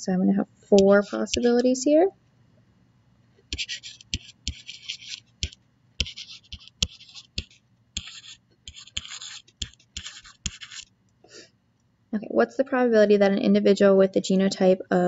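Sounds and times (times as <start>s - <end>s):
stylus scratching on tablet: 0.8s - 1.8s, 3.5s - 10.9s.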